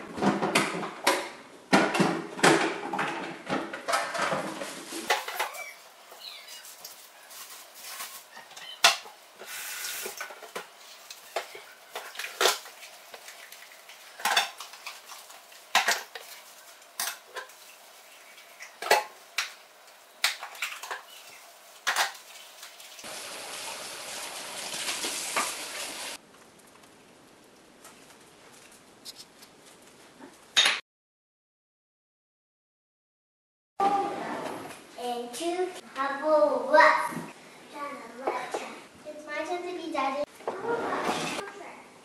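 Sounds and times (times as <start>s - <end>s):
even hiss: 9.4s - 10.2s.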